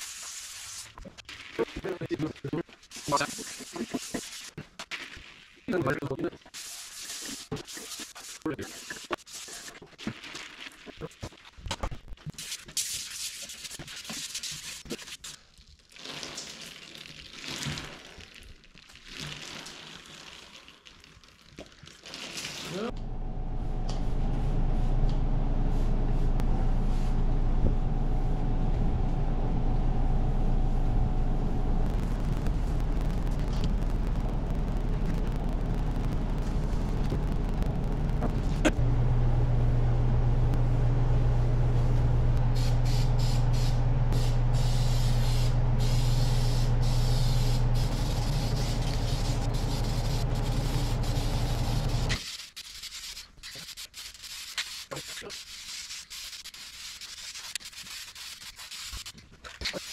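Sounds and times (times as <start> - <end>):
machine motor humming: 22.9 - 52.2.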